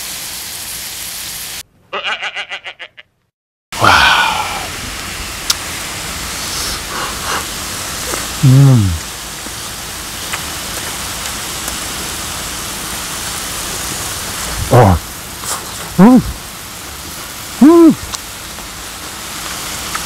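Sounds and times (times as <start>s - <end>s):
steady hiss: 0.0s - 1.6s, 3.8s - 20.0s
man eating: 3.8s - 4.7s, 6.4s - 9.1s
man humming with pleasure: 3.8s - 4.8s, 8.4s - 9.1s, 17.6s - 18.0s.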